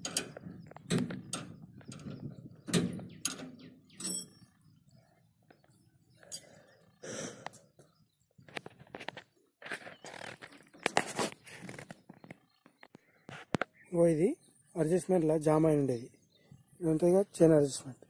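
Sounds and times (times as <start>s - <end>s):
drive chain clanking: 0.0s - 4.5s.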